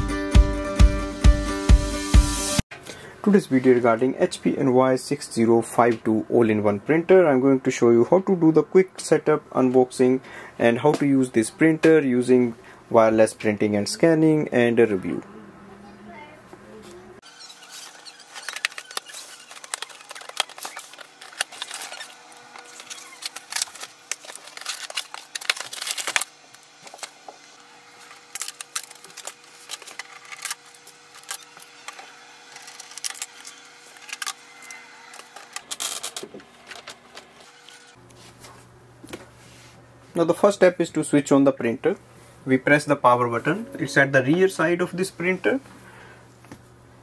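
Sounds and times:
cardboard box being unpacked: 17.6s - 27.2s.

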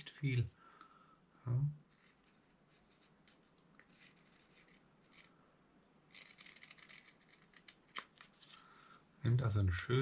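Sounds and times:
knife scraping wood: 1.8s - 5.4s, 6.1s - 8.8s.

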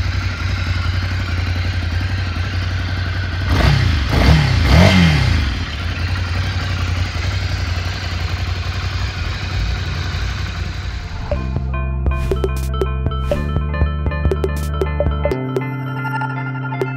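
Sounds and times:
motorcycle engine idling: 0.0s - 12.2s.

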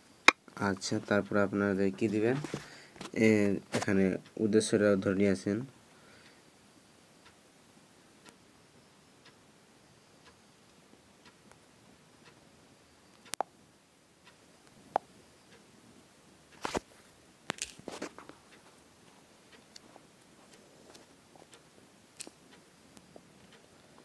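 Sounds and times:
faint ticking: 0.0s - 17.5s, 18.2s - 24.0s
sharp clicks and taps: 13.2s - 13.5s.

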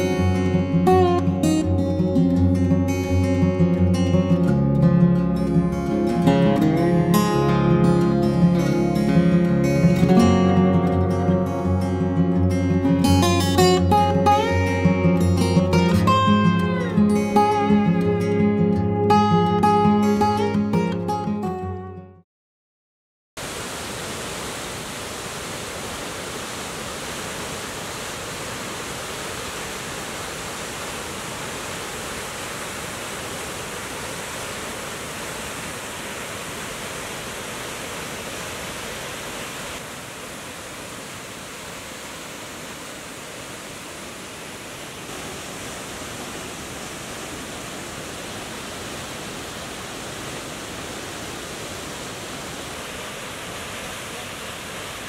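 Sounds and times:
waterfall rushing: 0.0s - 4.4s, 23.4s - 55.0s.

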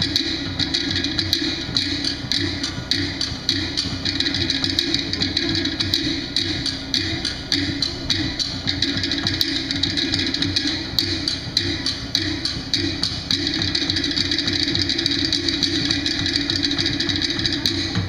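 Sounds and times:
dance music with percussion: 0.0s - 18.0s
drums: 0.0s - 18.0s.

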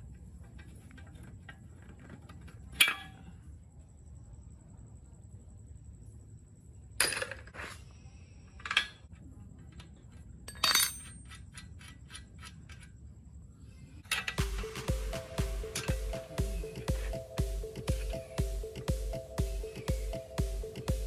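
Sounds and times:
metal tools clanking on frame: 10.5s - 11.9s
music: 14.1s - 21.0s.

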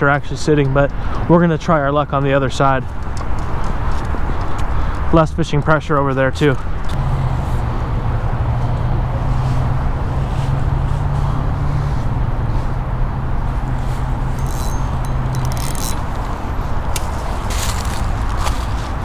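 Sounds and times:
vehicle engine running: 5.5s - 19.0s.

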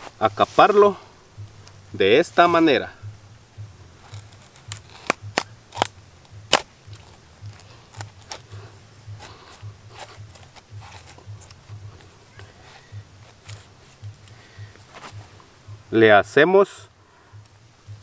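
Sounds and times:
knife cutting plant stem: 4.0s - 15.2s.

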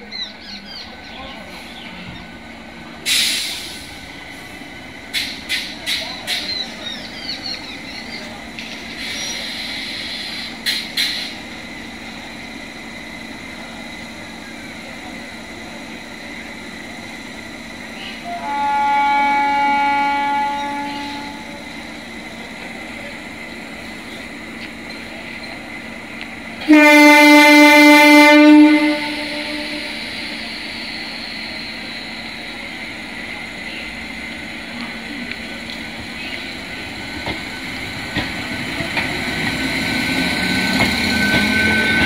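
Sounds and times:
train whine and wheel clicks: 1.8s - 42.0s
train horn blast: 18.0s - 21.6s, 26.6s - 30.4s.

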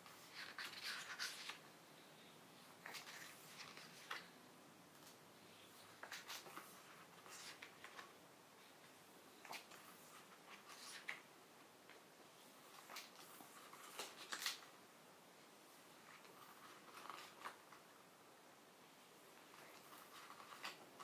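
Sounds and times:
book pages turning: 0.0s - 1.6s, 2.8s - 4.4s, 5.0s - 8.2s, 9.4s - 11.3s, 12.6s - 14.7s, 16.0s - 17.8s, 19.4s - 21.0s.

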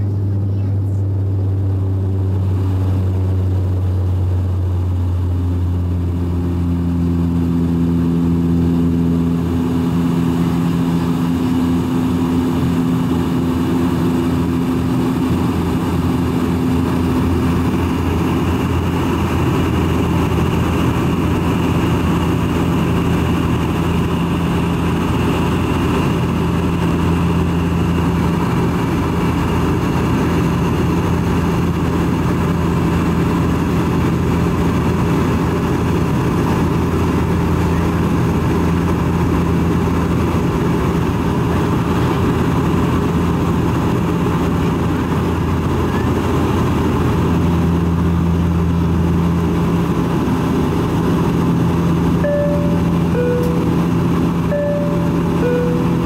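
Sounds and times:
propeller drone in cabin: 0.0s - 56.0s
held tones: 52.2s - 56.0s.

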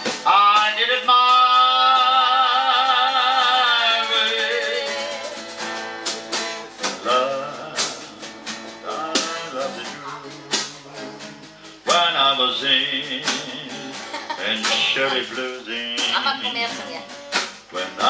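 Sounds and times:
hits on bucket drums: 0.0s - 2.0s, 10.4s - 10.9s
person singing: 0.0s - 5.5s, 6.6s - 18.0s
acoustic guitar strummed: 0.0s - 18.0s.

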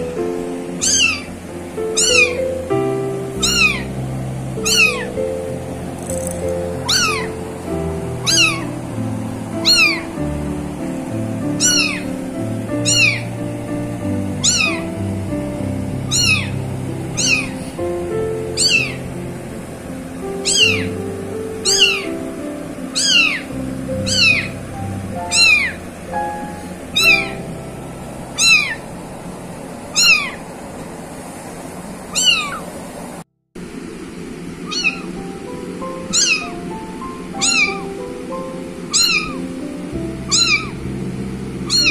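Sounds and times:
background music: 0.0s - 28.4s
kitten mewing: 0.8s - 1.3s, 1.9s - 2.4s, 3.4s - 4.0s, 4.6s - 5.2s, 6.0s - 7.4s, 8.2s - 8.7s, 9.6s - 10.1s, 11.6s - 12.1s, 12.8s - 13.3s, 14.4s - 14.9s, 16.0s - 16.6s, 17.2s - 17.8s, 18.5s - 19.0s, 20.4s - 21.0s, 21.6s - 22.2s, 22.9s - 25.8s, 26.9s - 27.5s, 28.3s - 28.8s, 29.9s - 30.4s, 32.1s - 32.7s, 34.6s - 35.2s, 36.0s - 36.6s, 37.3s - 37.9s, 38.9s - 39.5s, 40.2s - 40.8s, 41.7s - 41.9s.

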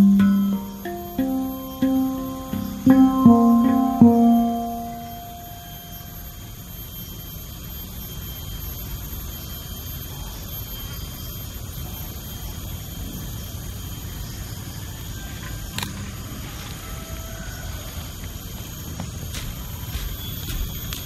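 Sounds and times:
sharp knock of handpan: 0.0s - 5.4s
faint steady high tone: 0.0s - 15.8s.

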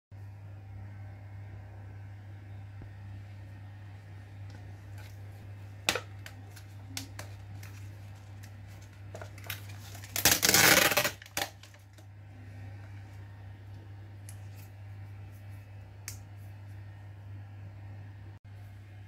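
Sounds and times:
steady low hum: 0.1s - 19.0s
foil lid peeling rustle: 7.2s - 11.9s.

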